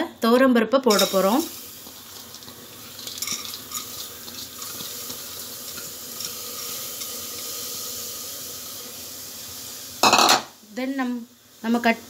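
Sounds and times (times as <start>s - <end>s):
lentils pattering into pot: 0.9s - 10.1s
soft watery hiss: 1.0s - 12.0s.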